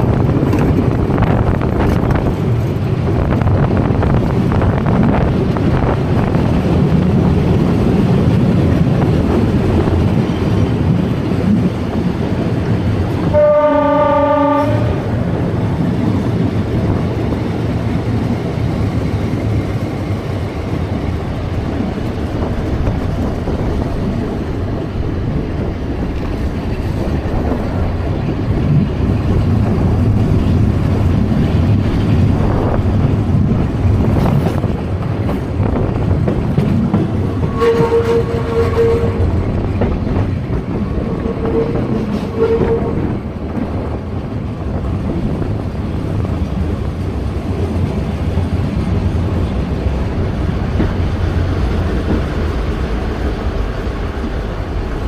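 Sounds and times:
train wheels running on rails: 0:00.0 - 0:55.0
train horn blast: 0:13.3 - 0:15.2, 0:37.4 - 0:39.3, 0:41.2 - 0:43.1.

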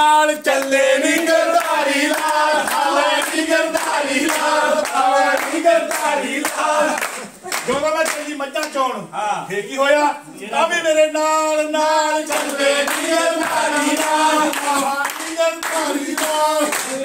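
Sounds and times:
group singing and chanting: 0:00.0 - 0:07.8, 0:10.4 - 0:17.0
hand claps: 0:00.5 - 0:08.8, 0:12.3 - 0:17.0.

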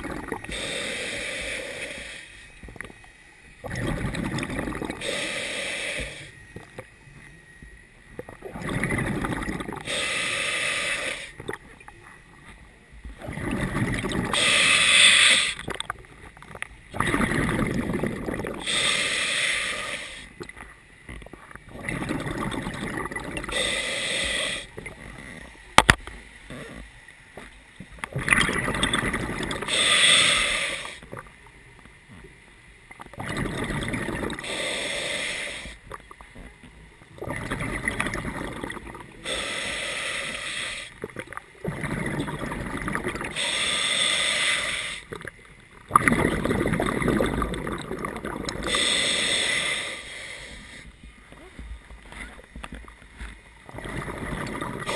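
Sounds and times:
exhaled bubbles rushing: 0:00.0 - 0:00.5, 0:03.6 - 0:05.0, 0:08.2 - 0:09.9, 0:13.2 - 0:14.4, 0:16.9 - 0:18.6, 0:21.7 - 0:23.5, 0:28.1 - 0:29.7, 0:33.1 - 0:34.4, 0:37.2 - 0:39.1, 0:41.0 - 0:43.4, 0:45.1 - 0:48.8, 0:53.6 - 0:54.9
regulator hissing inhalation: 0:00.5 - 0:02.5, 0:04.6 - 0:06.4, 0:09.7 - 0:11.4, 0:14.3 - 0:15.6, 0:18.6 - 0:20.3, 0:23.4 - 0:25.5, 0:29.6 - 0:31.1, 0:34.1 - 0:35.8, 0:38.6 - 0:41.0, 0:43.2 - 0:45.1, 0:48.2 - 0:51.0.

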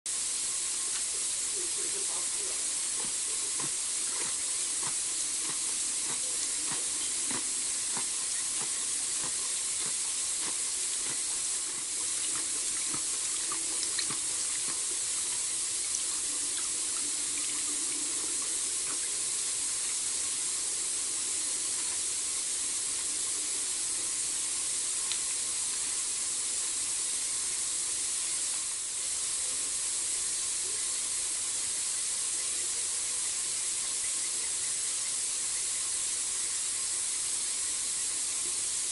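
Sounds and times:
night bush ambience hiss: 0:00.1 - 0:38.9
faint clicks and ticks: 0:02.8 - 0:19.2.

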